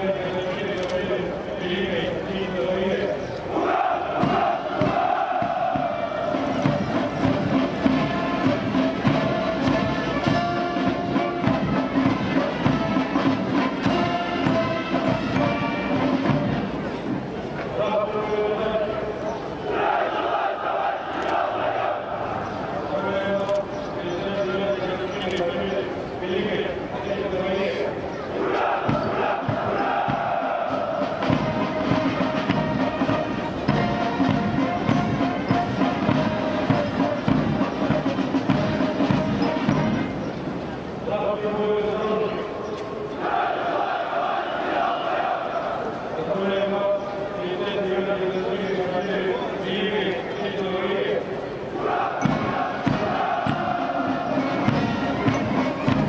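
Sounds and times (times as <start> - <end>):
military band playing: 0.2 - 18.2, 18.8 - 22.8, 28.3 - 42.0, 43.2 - 46.0, 51.7 - 56.0.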